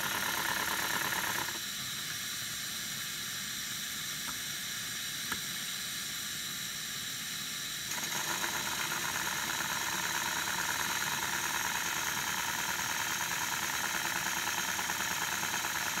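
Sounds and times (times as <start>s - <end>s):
steam hissing: 0.0s - 16.0s
model locomotive exhaust beat: 7.9s - 16.0s.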